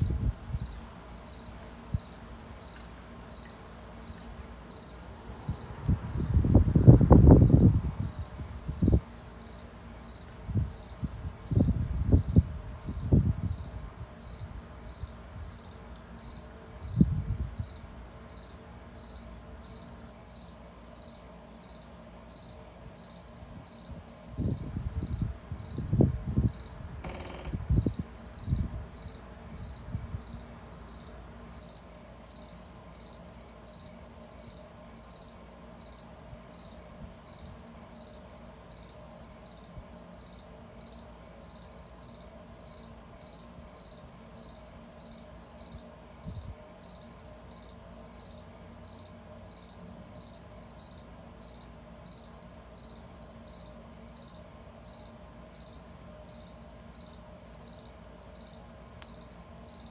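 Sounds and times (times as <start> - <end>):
crickets chirping: 0.0 - 59.9.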